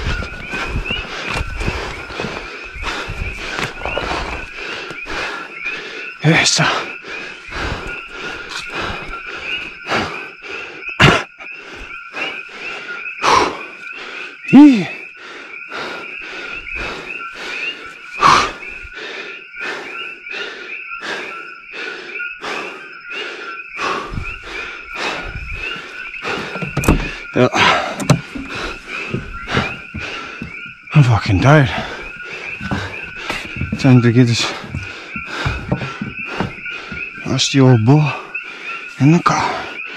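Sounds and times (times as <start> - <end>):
frogs chorus: 0.0 - 39.9
loud grunt: 11.0 - 11.4, 14.5 - 15.0
knocks and thumps: 24.0 - 30.9, 31.7 - 37.3.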